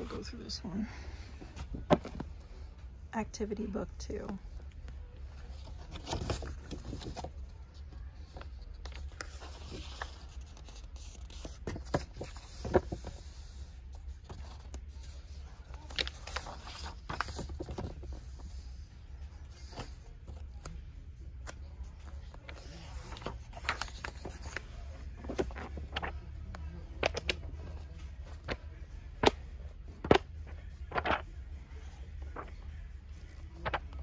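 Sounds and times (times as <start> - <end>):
paper pages rustling: 4.6 - 34.0.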